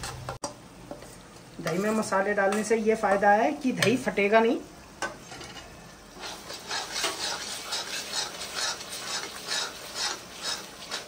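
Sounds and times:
spoon scraping a pan: 0.0 - 2.8, 5.0 - 11.0
light sizzle: 0.0 - 11.0.

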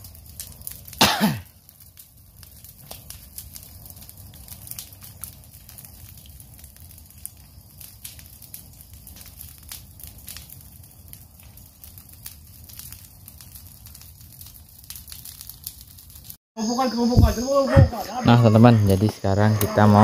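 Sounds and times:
fire crackling and popping: 0.0 - 20.0.

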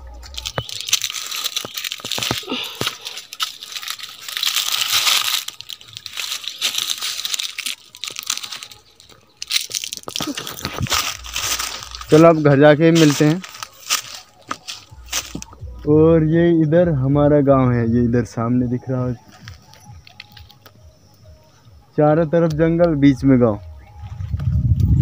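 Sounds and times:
dry leaves crunching underfoot: 0.0 - 15.9, 18.9 - 20.8.

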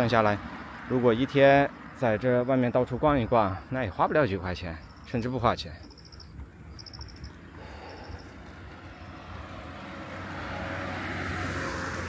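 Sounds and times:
vehicle passing: 6.0 - 12.0.

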